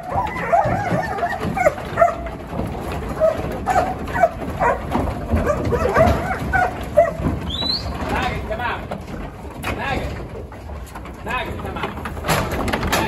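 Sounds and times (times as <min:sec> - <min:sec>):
dog barking: 0:00.0 - 0:02.3, 0:03.2 - 0:07.3.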